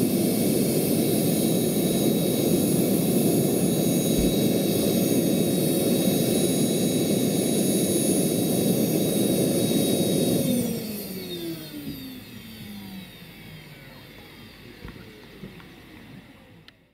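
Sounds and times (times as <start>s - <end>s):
helicopter rotor turning: 0.0s - 16.7s
model helicopter turbine whine: 0.0s - 16.9s.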